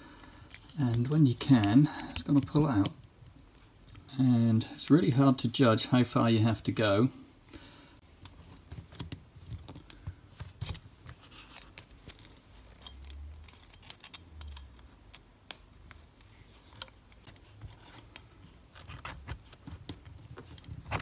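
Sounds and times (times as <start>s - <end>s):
small metallic clicks and scrapes: 8.2s - 21.0s.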